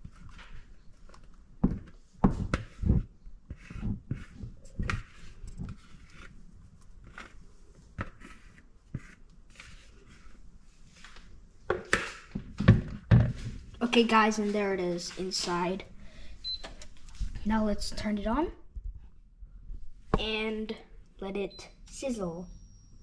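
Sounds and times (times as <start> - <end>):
spatula scraping a bowl: 2.4 - 6.4, 8.0 - 10.4.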